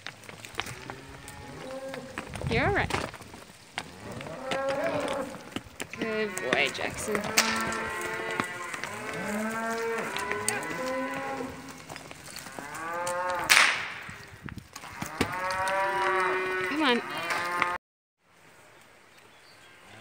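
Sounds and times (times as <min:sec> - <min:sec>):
cattle mooing and bawling: 0:00.6 - 0:02.6, 0:03.8 - 0:13.5, 0:14.8 - 0:17.8.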